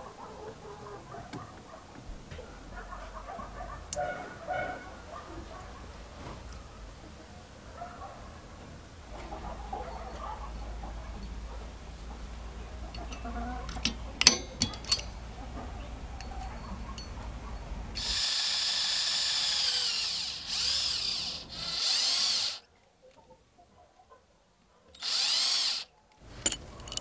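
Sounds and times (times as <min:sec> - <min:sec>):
electric drill whining: 0:18.0 - 0:22.6, 0:25.0 - 0:25.9.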